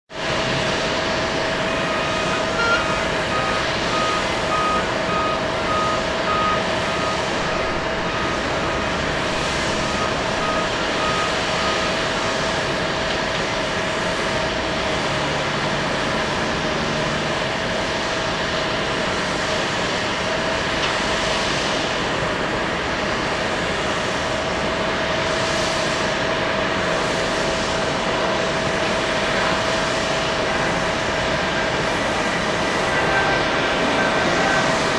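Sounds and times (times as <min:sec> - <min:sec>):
distant jet roar: 0:00.1 - 0:34.9
reversing alarm beeps: 0:01.0 - 0:12.8, 0:32.3 - 0:34.9.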